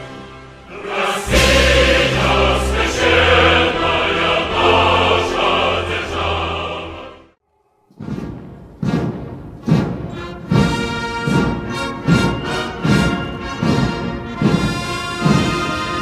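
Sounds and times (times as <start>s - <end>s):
orchestral accompaniment: 0.0s - 7.4s, 8.7s - 16.0s
choir singing held notes: 0.4s - 7.4s.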